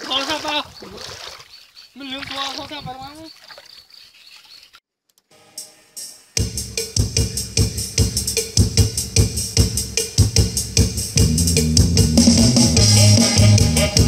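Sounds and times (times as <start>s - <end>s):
music with driving beat: 6.0s - 14.0s.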